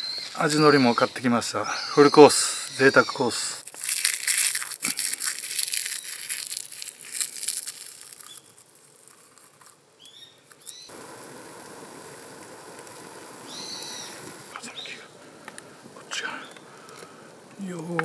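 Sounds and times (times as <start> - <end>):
plastic packaging crinkling: 3.6 - 10.9
steady hiss: 4.8 - 18.0.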